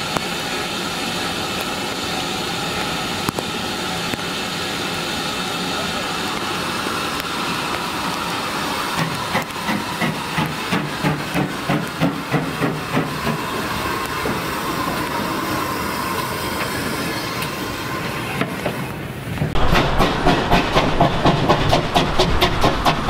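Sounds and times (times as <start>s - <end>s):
steam hissing: 0.0s - 23.0s
rhythmic locomotive beat: 9.0s - 15.2s, 19.6s - 23.0s.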